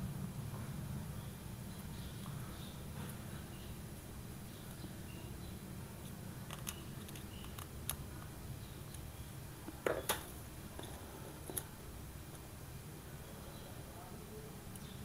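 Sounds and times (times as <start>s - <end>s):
steady low hum: 0.0s - 15.0s
small parts clicking and tapping: 6.4s - 8.3s.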